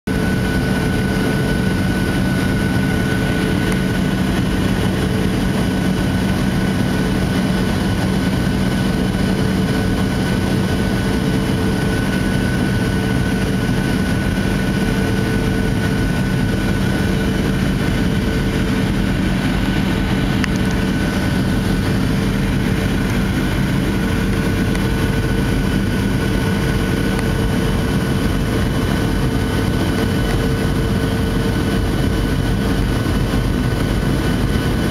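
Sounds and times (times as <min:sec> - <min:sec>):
airliner engines droning: 0:00.1 - 0:34.9
constant cabin hums: 0:00.1 - 0:34.9
rushing air: 0:00.1 - 0:34.9.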